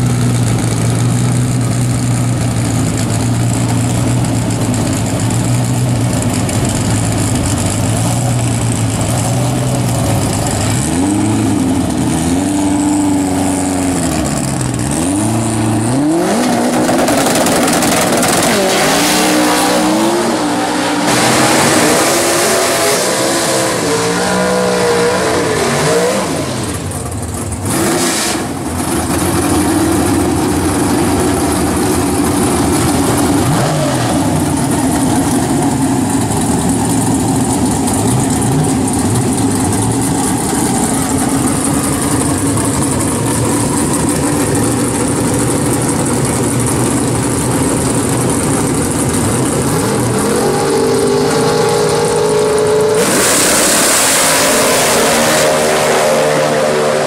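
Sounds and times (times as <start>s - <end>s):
race car engine idling and revving: 0.0s - 57.0s
loud rushing noise: 16.3s - 27.0s, 49.4s - 57.0s.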